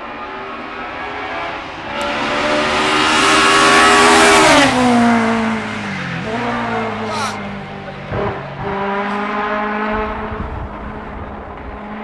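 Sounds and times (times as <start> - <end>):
rally car engine at high revs: 0.0 - 12.0.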